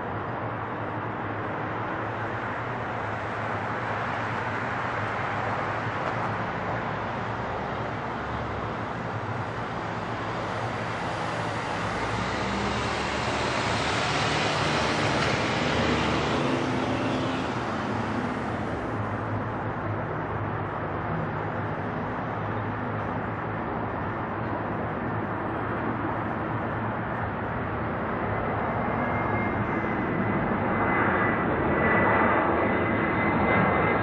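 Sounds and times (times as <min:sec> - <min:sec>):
jet engines roaring and whining: 0:00.0 - 0:34.0.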